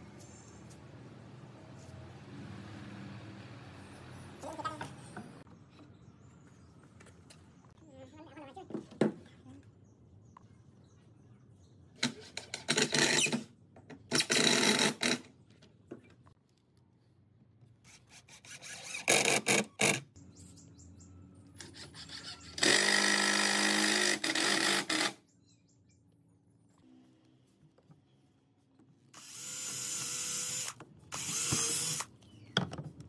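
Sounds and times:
impact driver driving screws into wood: 0:14.1 - 0:15.3, 0:22.6 - 0:25.2, 0:29.2 - 0:32.1.

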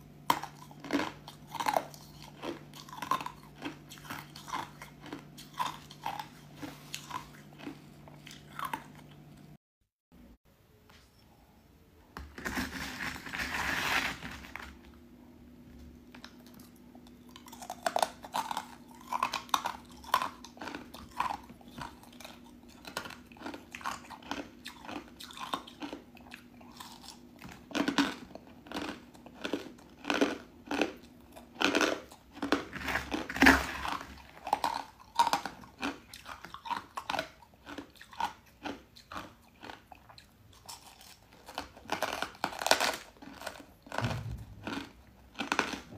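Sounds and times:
ice crunching while chewed: 0:00.2 - 0:09.4, 0:16.1 - 0:45.9
faint low hum: 0:10.2 - 0:45.9.

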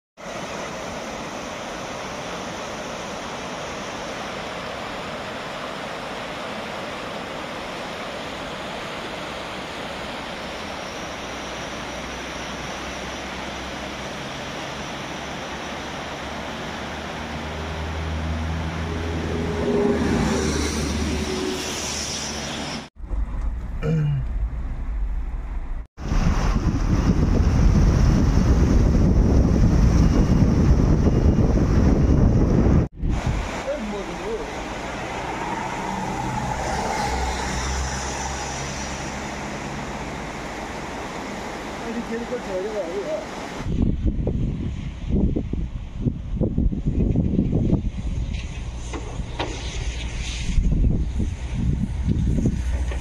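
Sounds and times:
river rushing: 0:00.2 - 0:22.9, 0:33.0 - 0:43.7
engine hum: 0:09.6 - 0:44.4
low rumble: 0:23.0 - 0:33.2.

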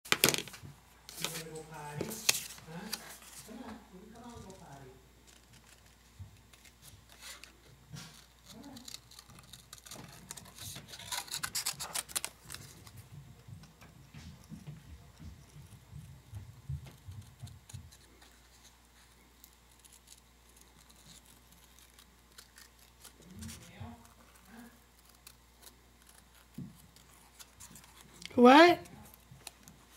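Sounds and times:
paper handling: 0:00.1 - 0:15.8, 0:16.4 - 0:29.9
scissors snipping paper: 0:04.1 - 0:12.9, 0:16.7 - 0:29.9.

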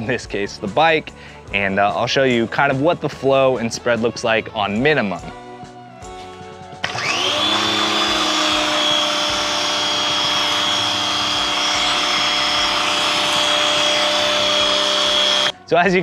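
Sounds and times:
pressure washer motor whine: 0:06.8 - 0:15.5.

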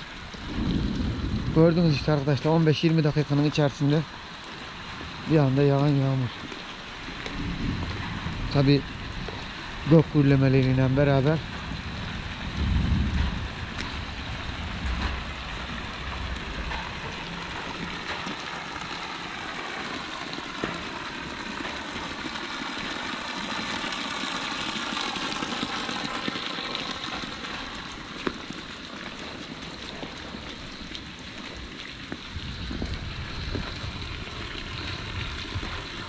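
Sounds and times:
heavy rain hissing: 0:00.0 - 0:36.0
low rumble: 0:00.3 - 0:02.5, 0:07.1 - 0:18.3, 0:32.3 - 0:36.0.

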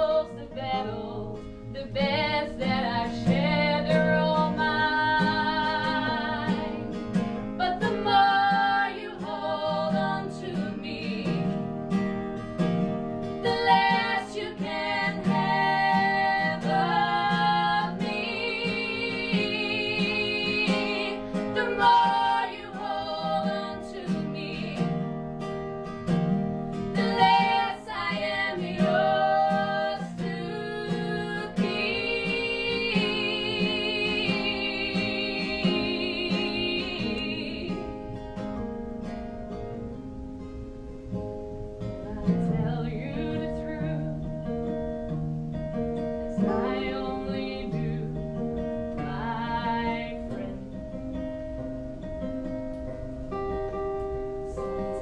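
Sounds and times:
women singing together: 0:00.0 - 0:12.0, 0:13.3 - 0:25.2, 0:26.7 - 0:38.2, 0:42.1 - 0:44.3, 0:46.2 - 0:50.8
acoustic guitar: 0:00.0 - 0:55.0.

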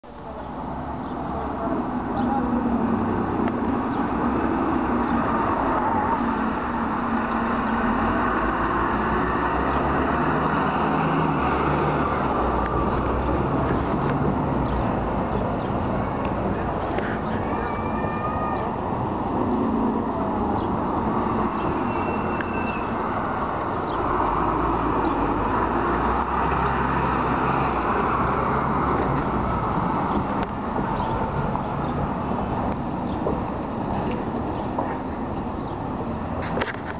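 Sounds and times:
bus diesel engine under load: 0:00.0 - 0:36.9
tyre and road noise: 0:00.0 - 0:36.9
bus engine hum: 0:18.5 - 0:36.9.

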